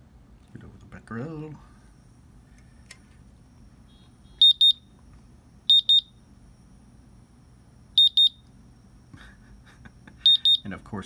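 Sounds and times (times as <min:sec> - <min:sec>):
dosimeter alarm beeps: 0:03.6 - 0:05.0, 0:05.6 - 0:06.3, 0:07.9 - 0:08.6, 0:10.2 - 0:10.8.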